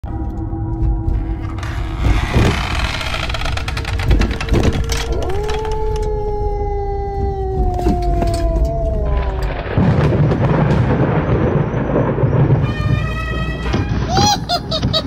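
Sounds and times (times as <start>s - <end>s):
low rumble: 0.1s - 13.9s
glitchy crackles: 1.2s - 6.1s
long rising howl: 4.8s - 10.2s.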